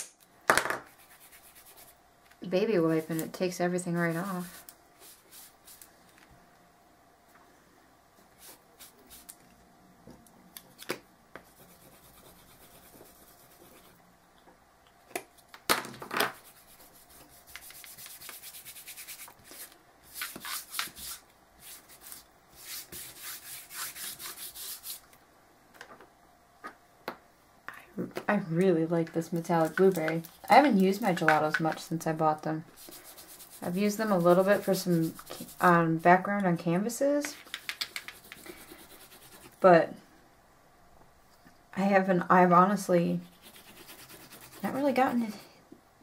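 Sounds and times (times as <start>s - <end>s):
hands rubbing on painted board: 16.3s - 25.0s, 32.8s - 36.0s, 37.3s - 39.6s, 43.2s - 45.1s.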